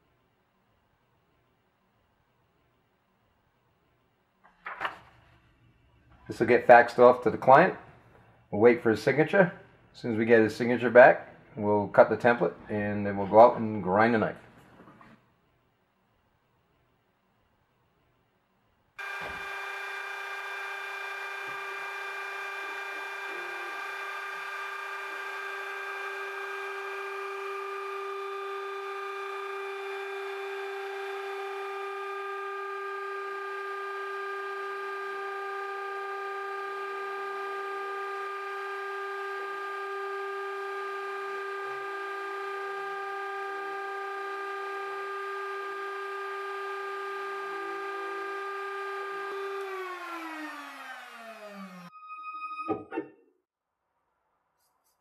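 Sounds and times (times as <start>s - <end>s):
router spindle high-pitched whine: 19.0s - 52.9s.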